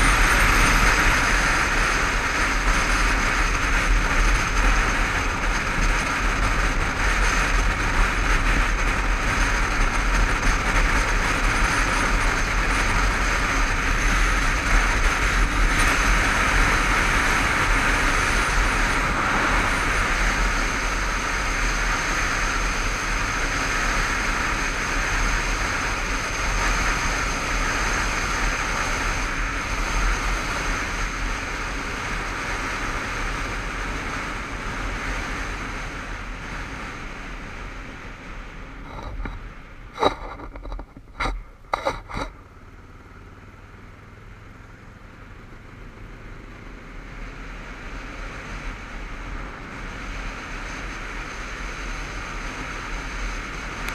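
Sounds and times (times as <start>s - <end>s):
motorcycle engine cruising: 0.0s - 53.9s
road noise: 0.0s - 53.9s
wind rush: 35.8s - 42.4s.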